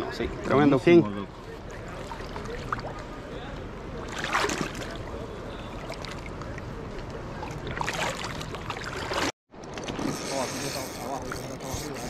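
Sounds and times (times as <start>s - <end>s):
river water sloshing around a net: 1.7s - 3.2s, 4.0s - 6.5s, 7.4s - 12.0s.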